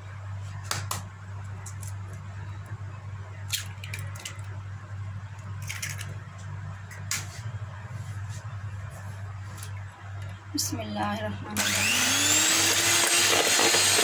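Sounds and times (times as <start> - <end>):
steady low hum: 0.0 - 12.6
egg shells cracking: 3.5 - 4.6, 5.4 - 6.2.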